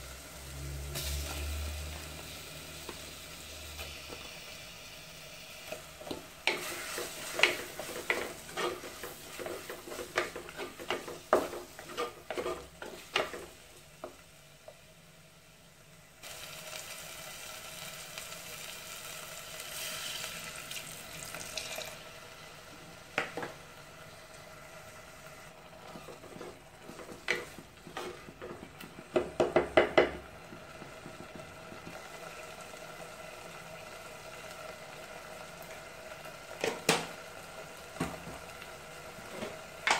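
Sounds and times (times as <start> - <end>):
masala sizzling: 0.0 - 39.9
water poured into pot: 20.1 - 22.0.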